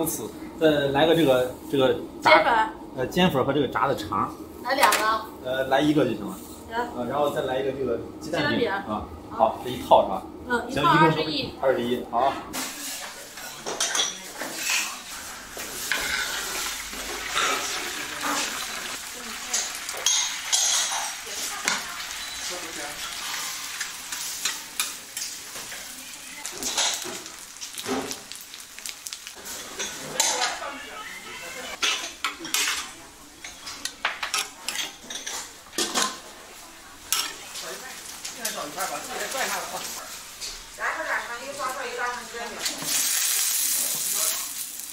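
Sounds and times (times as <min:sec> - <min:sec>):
pots and utensils clinking: 0:12.5 - 0:28.4, 0:29.3 - 0:30.8, 0:31.7 - 0:36.3, 0:37.0 - 0:40.6.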